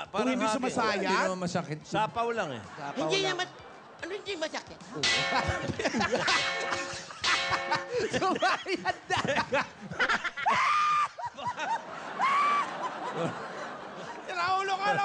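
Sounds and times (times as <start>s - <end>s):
ringing clanging sound effects: 5.0s - 8.2s
laughter: 5.0s - 15.0s.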